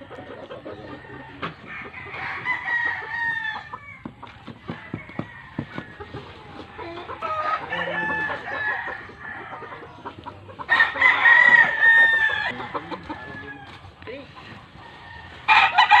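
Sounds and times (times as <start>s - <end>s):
roosters crowing: 0.0s - 16.0s.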